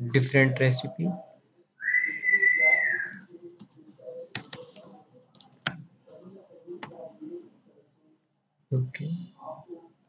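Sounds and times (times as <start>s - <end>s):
whistled tone: 1.8s - 3.2s
computer keyboard clicks: 4.3s - 5.9s.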